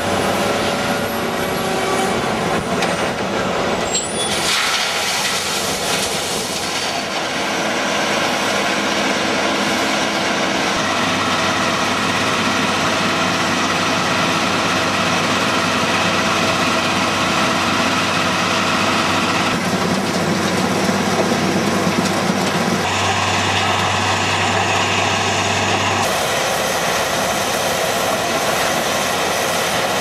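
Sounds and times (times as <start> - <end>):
crushing plant drone: 11.0 - 30.0.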